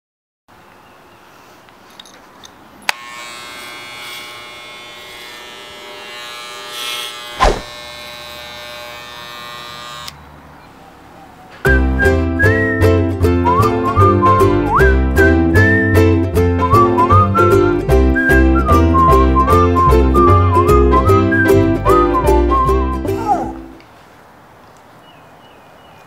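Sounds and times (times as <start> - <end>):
hair clipper buzzing: 2.9 - 10.2
sharp knock: 7.4 - 7.8.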